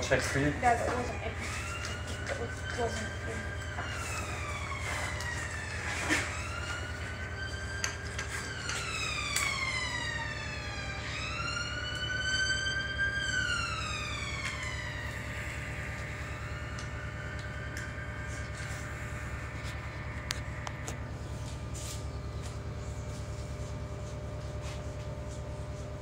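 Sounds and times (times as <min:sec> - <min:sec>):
emergency siren wailing: 0:00.0 - 0:26.0
steady low hum: 0:00.0 - 0:26.0.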